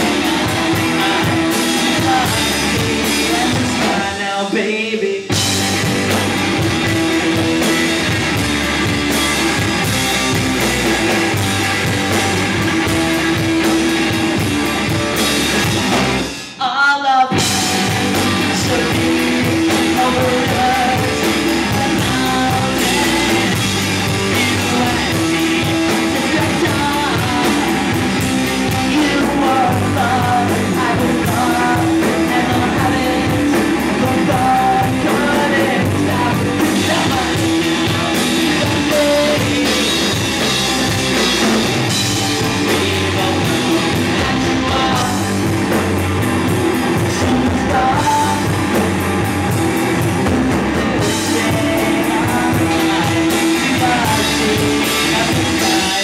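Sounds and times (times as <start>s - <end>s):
man singing: 0.0s - 7.8s, 16.4s - 45.9s, 46.9s - 48.9s, 50.5s - 56.0s
bass guitar: 0.0s - 56.0s
drum kit: 0.0s - 56.0s
electric guitar: 0.0s - 56.0s.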